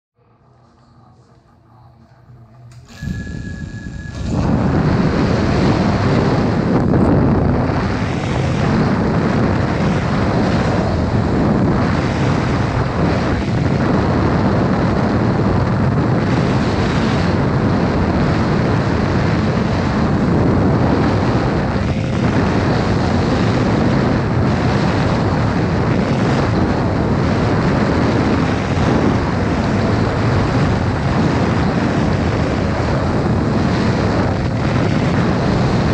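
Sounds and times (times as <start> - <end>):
short steady tone: 0.3 - 6.3.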